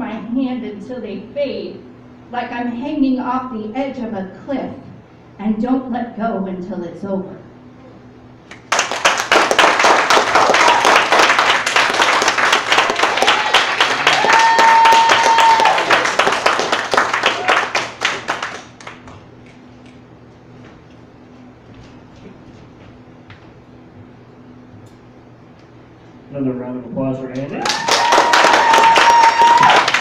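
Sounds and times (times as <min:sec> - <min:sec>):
audience applauding: 0:08.5 - 0:19.2, 0:27.6 - 0:30.0.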